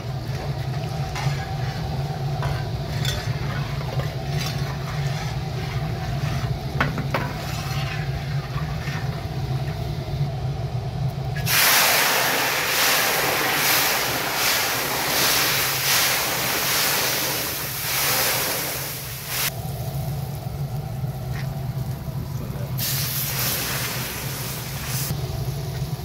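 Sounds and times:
low steady hum: 0:00.0 - 0:11.5, 0:14.1 - 0:26.0
faint sizzle: 0:00.0 - 0:26.0
hot oil hissing: 0:11.4 - 0:26.0.

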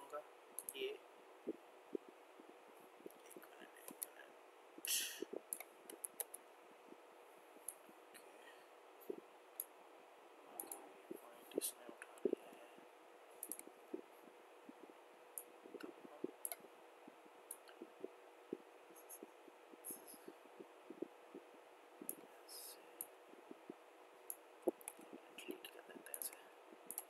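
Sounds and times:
background hiss: 0:00.0 - 0:27.0
faint steady hum: 0:00.0 - 0:27.0
computer mouse clicks: 0:03.0 - 0:04.2, 0:04.8 - 0:06.4, 0:10.6 - 0:10.9, 0:13.4 - 0:14.0, 0:14.7 - 0:16.7, 0:24.3 - 0:27.0.

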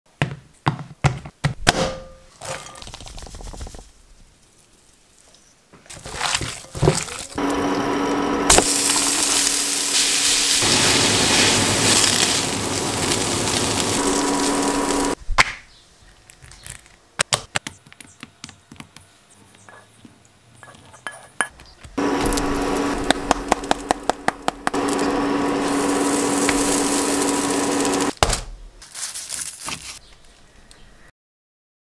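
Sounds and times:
loud steady hiss: 0:07.4 - 0:15.2, 0:22.0 - 0:28.2.

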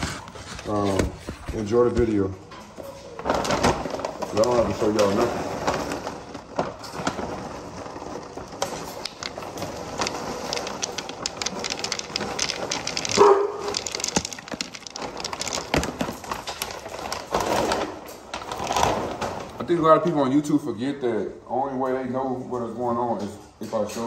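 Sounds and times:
plastic bag crinkling: 0:00.0 - 0:19.8
dry kibble rattling: 0:01.5 - 0:19.7.

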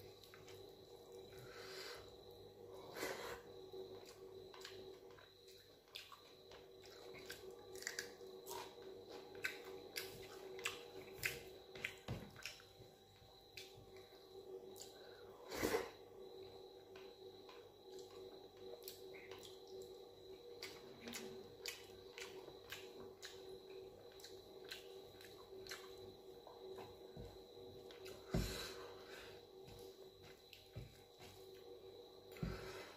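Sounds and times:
lip smacks and chewing: 0:20.6 - 0:26.0.

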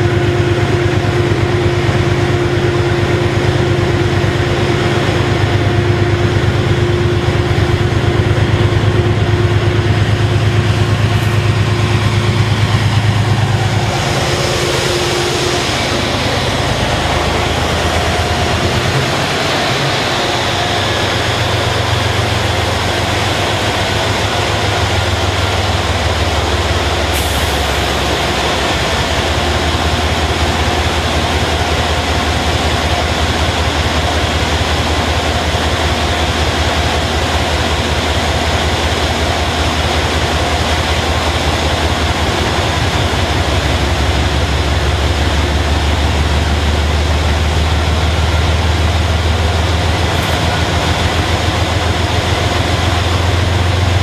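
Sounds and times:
diesel locomotive engine drone: 0:00.0 - 0:54.0.

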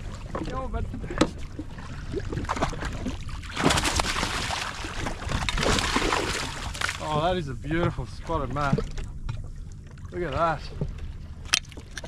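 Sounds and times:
fish thrashing in water: 0:00.0 - 0:07.2.

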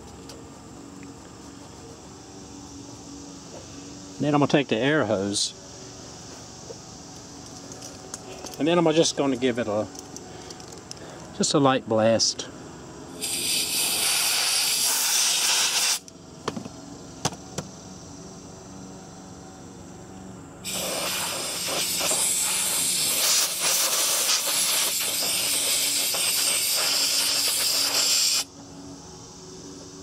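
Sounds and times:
compressed air blow gun hissing: 0:13.1 - 0:16.1, 0:20.6 - 0:28.5.

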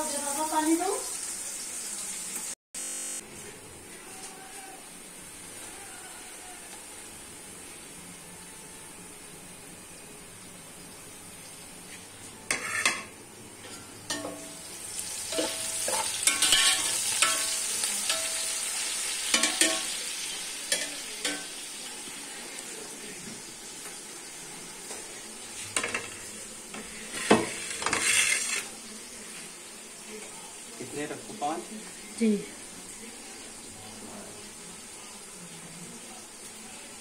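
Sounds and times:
onion and garlic sizzling in oil: 0:00.0 - 0:37.0
metal spoon scraping a pot: 0:12.5 - 0:13.1, 0:15.3 - 0:18.3, 0:27.0 - 0:28.8.

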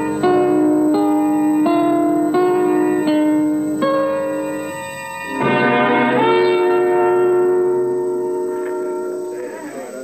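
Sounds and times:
slow held-note music: 0:00.0 - 0:10.0.

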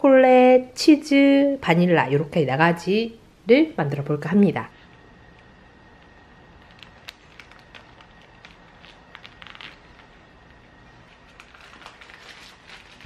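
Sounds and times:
paper bag crinkling: 0:06.0 - 0:13.0.

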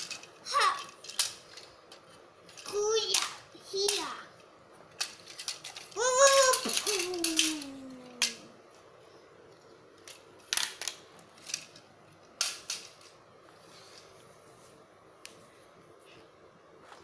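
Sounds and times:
plastic toys clicking and knocking: 0:00.0 - 0:04.2, 0:04.9 - 0:08.5, 0:10.0 - 0:13.2
child's falling vocal sound: 0:06.0 - 0:08.5.

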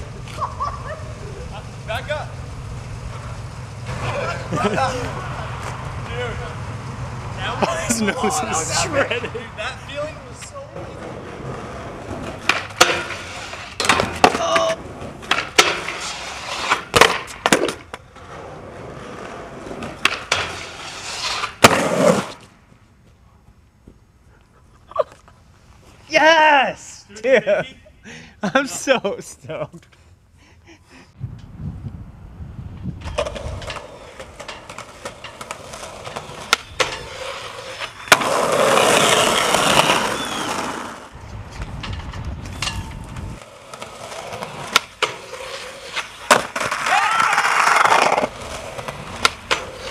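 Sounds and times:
skateboard scraping and rolling: 0:00.0 - 0:23.0, 0:32.7 - 0:49.9
skateboard clacks and impacts: 0:10.8 - 0:16.1, 0:16.7 - 0:18.1, 0:19.2 - 0:20.8, 0:21.4 - 0:22.4, 0:33.0 - 0:41.0, 0:41.6 - 0:49.9.

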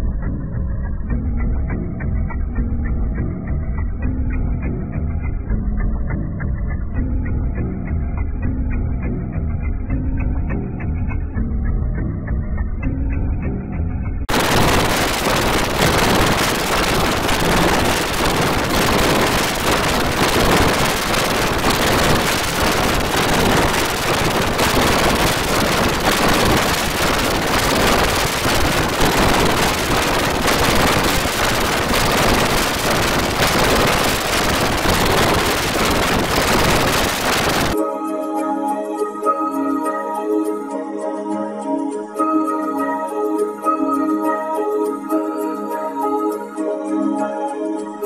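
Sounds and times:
harsh static-like distortion noise: 0:14.3 - 0:37.8.

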